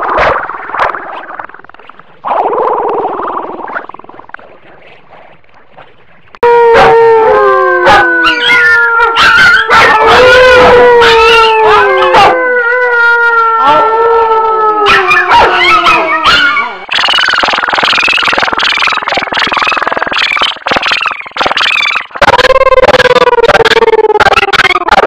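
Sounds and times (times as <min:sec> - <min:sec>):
dogs howling: 0:06.4 - 0:16.9
dogs yipping and barking: 0:06.6 - 0:12.4, 0:14.8 - 0:22.2.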